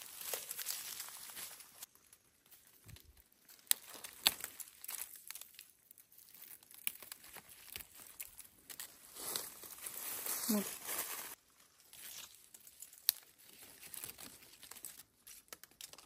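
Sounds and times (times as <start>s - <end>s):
leaves rustling and crinkling: 0.0s - 16.0s
plant stems snapping: 0.1s - 1.7s, 2.9s - 9.5s, 12.0s - 16.0s.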